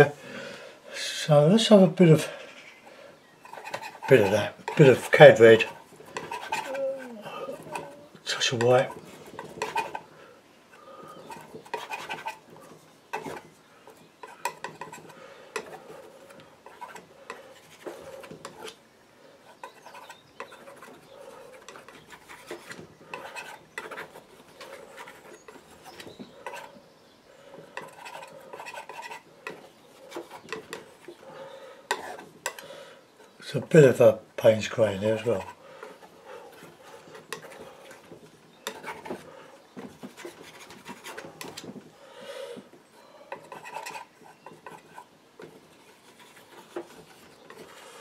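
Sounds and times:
painting knife scraping paint: 0:03.4 - 0:10.1, 0:10.7 - 0:41.7, 0:42.6 - 0:48.0.

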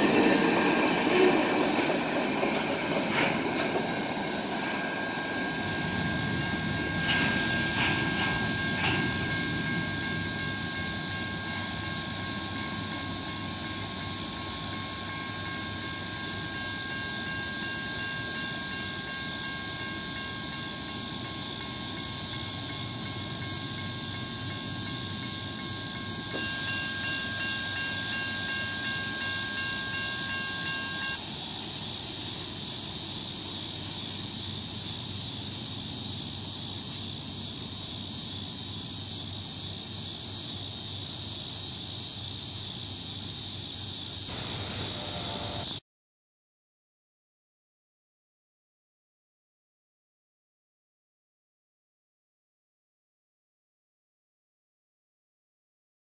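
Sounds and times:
crossing warning bell ringing: 0:00.0 - 0:31.3, 0:44.3 - 0:45.8
distant train rumble: 0:00.0 - 0:45.8
steady high hiss: 0:00.0 - 0:45.8.

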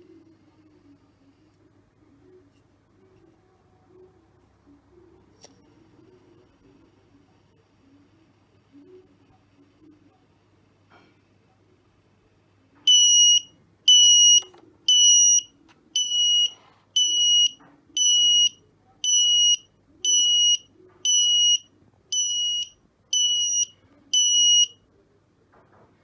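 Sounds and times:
high-pitched buzzer beeps: 0:12.9 - 0:24.8.

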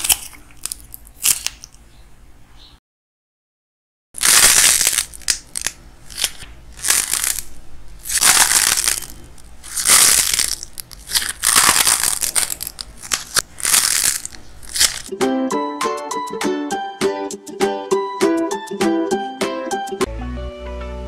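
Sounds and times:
dried clay cracking and crunching: 0:00.0 - 0:01.8, 0:04.2 - 0:15.1.

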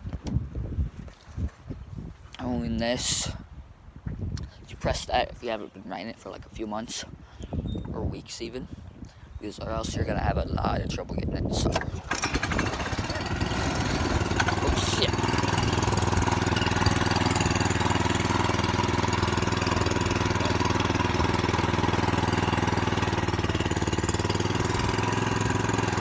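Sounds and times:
small engine idling: 0:11.9 - 0:26.0.

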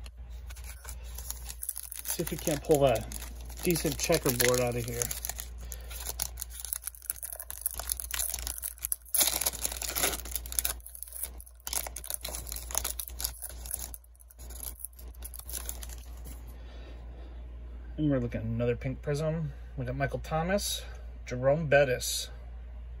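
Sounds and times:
foil wrapper tearing and crinkling: 0:00.0 - 0:16.4.

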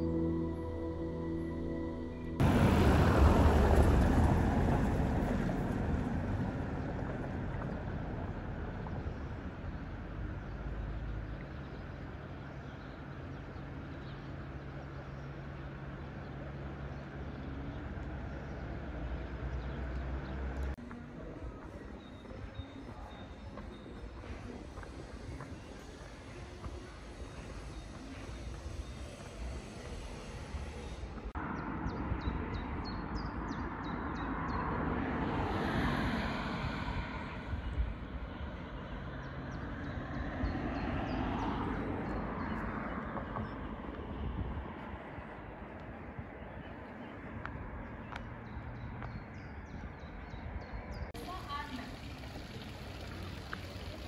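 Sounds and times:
vehicle passing: 0:00.0 - 0:11.4, 0:23.0 - 0:46.3.

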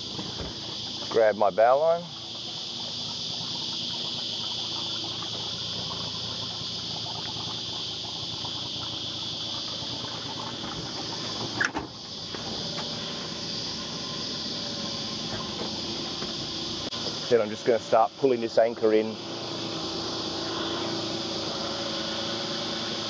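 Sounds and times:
outboard motor idling: 0:00.0 - 0:23.0
steady high hiss: 0:00.0 - 0:23.0
foot thumping on metal boat: 0:15.3 - 0:16.6.

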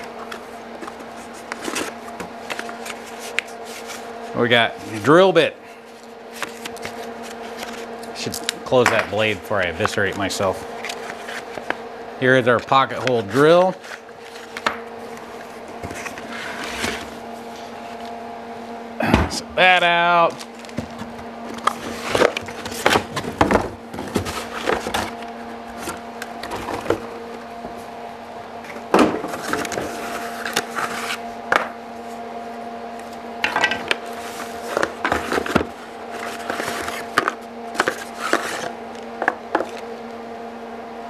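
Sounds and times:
cardboard rustling and scraping: 0:00.0 - 0:04.4, 0:05.9 - 0:08.0, 0:09.9 - 0:11.8, 0:12.5 - 0:18.2, 0:20.3 - 0:27.9, 0:28.7 - 0:31.2, 0:34.1 - 0:39.8
steady low hum: 0:00.0 - 0:41.0.

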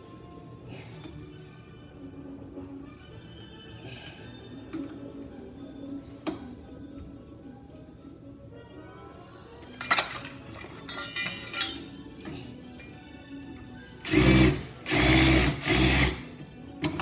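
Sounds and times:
cordless drill driving a screw: 0:14.0 - 0:16.3.

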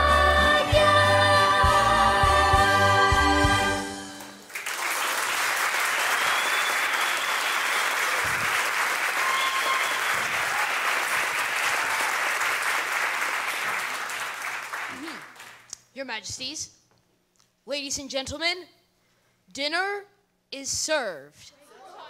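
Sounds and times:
audience applause: 0:04.2 - 0:15.6.

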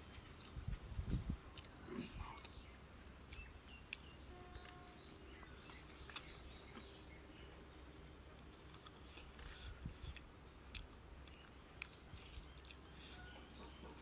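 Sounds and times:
faint bird chirps: 0:00.9 - 0:08.0, 0:11.3 - 0:14.0.

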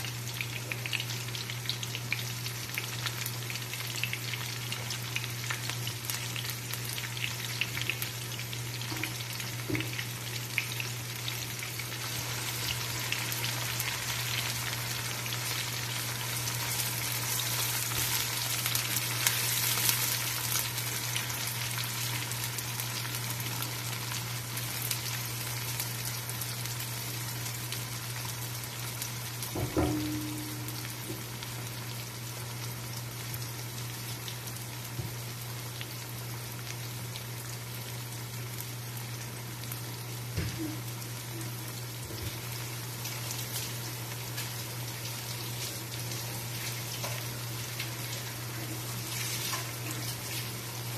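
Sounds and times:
onions sizzling in hot oil: 0:00.0 - 0:50.9
knock: 0:29.6 - 0:30.2.

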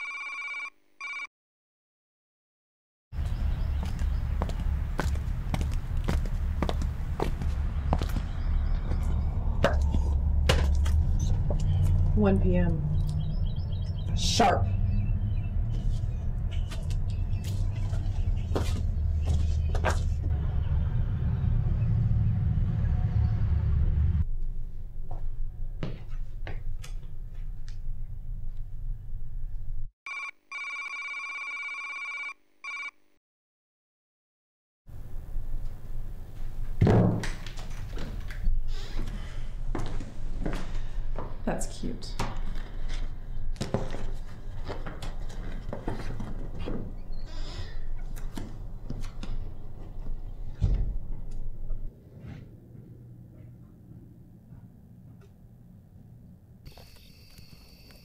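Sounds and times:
electronic phone-like ringing tone: 0:00.0 - 0:01.3, 0:30.1 - 0:33.0
low rumble: 0:20.2 - 0:25.6.

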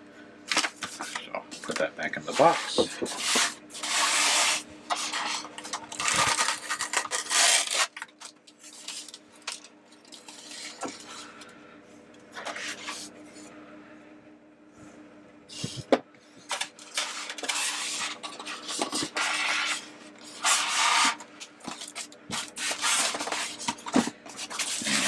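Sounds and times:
faint steady hum: 0:00.0 - 0:25.0
styrofoam blocks squeaking: 0:02.3 - 0:09.2.

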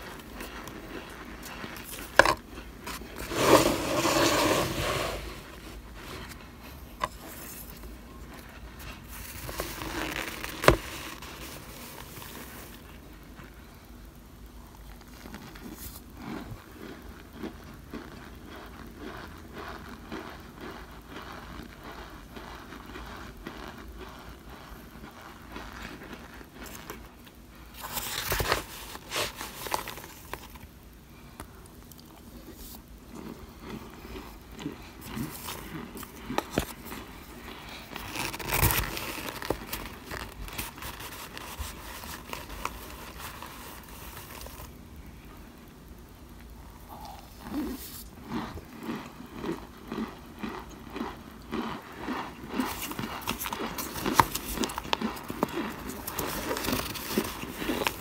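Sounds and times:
cornstarch chunks crunching and squeaking: 0:00.0 - 0:13.5, 0:14.7 - 0:44.8, 0:46.9 - 0:58.0.

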